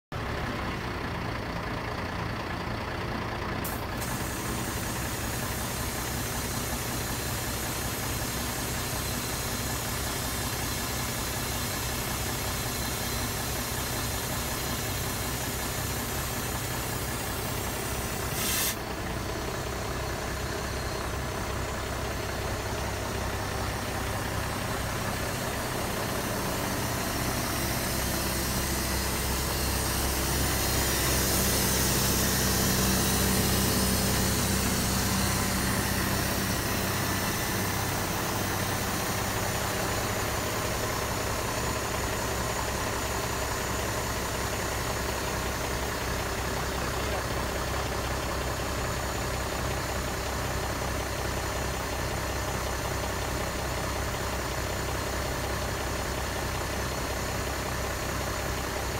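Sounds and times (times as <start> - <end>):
diesel truck engine running: 0.1 - 58.9
short hiss: 18.2 - 18.8.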